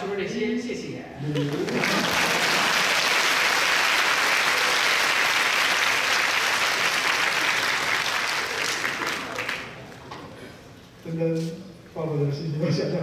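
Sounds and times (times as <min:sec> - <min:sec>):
audience applauding: 0:01.3 - 0:10.1.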